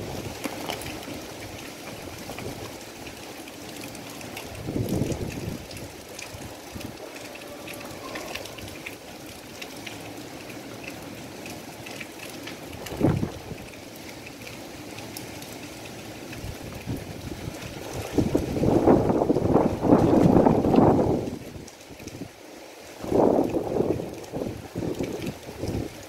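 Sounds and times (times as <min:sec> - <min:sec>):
rain rushing: 0:00.0 - 0:26.0
wind gusts buffeting microphone: 0:04.4 - 0:08.9, 0:12.7 - 0:13.8, 0:16.3 - 0:22.3, 0:23.0 - 0:26.0.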